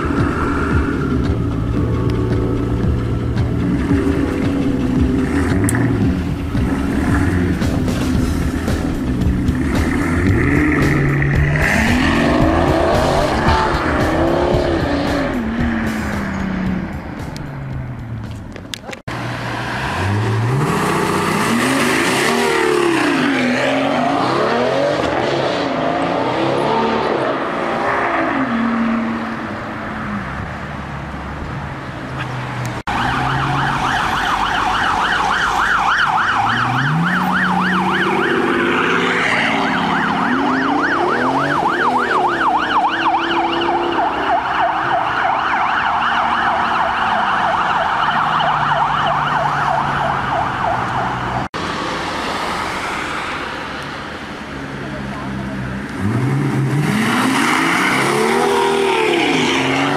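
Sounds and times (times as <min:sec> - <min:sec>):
car engine revving: 0:02.6 - 0:18.4, 0:19.0 - 0:29.4, 0:32.5 - 0:53.6, 0:55.0 - 0:59.9
warbling siren: 0:32.9 - 0:51.4.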